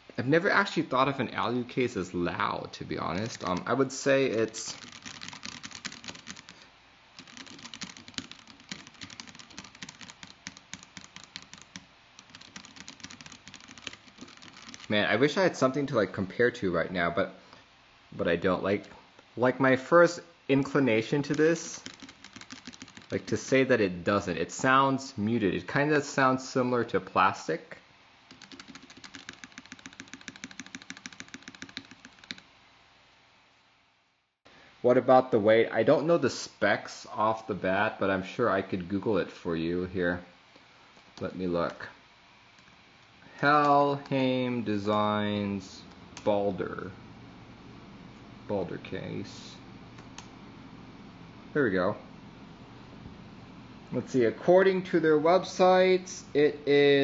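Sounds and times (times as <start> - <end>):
mechanical keyboard typing: 3.1 - 3.8, 4.4 - 6.6, 7.2 - 15.0, 21.2 - 23.4, 28.3 - 32.4.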